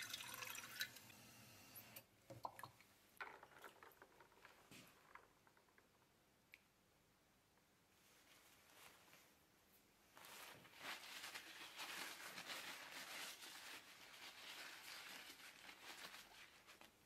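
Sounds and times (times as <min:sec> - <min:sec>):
tissue rubbing on glass flask: 0:10.2 - 0:17.0.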